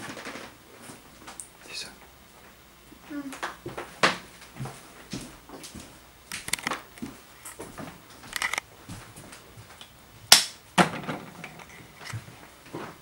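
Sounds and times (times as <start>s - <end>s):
sharp clicks and knocks: 6.3s - 6.8s, 8.3s - 8.6s
sharp crack: 10.3s - 10.9s.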